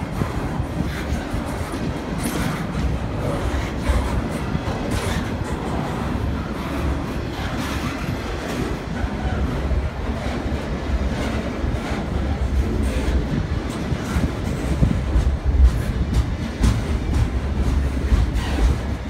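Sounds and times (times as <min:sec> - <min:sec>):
freight train wheels rumbling: 0:00.0 - 0:19.0
train wheel clacks: 0:00.0 - 0:19.0.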